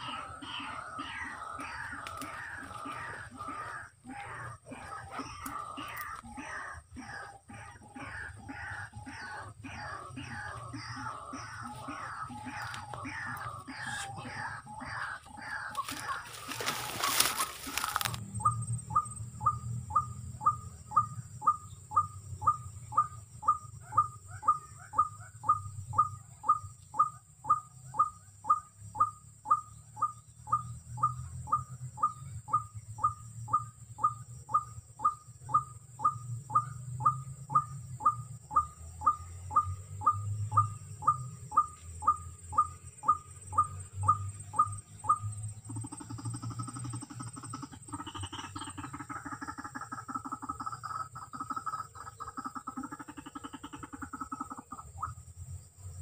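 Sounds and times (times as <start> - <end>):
waterhen repeated call: 0.0 - 18.2.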